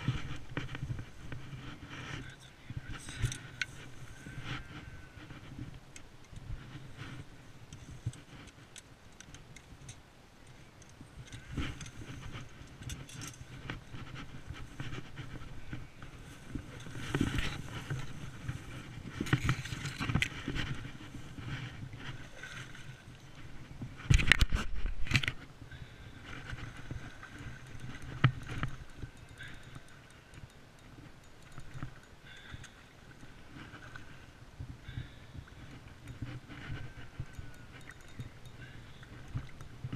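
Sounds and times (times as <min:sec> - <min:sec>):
vegetation rustling against camera: 0:11.2 - 0:25.5.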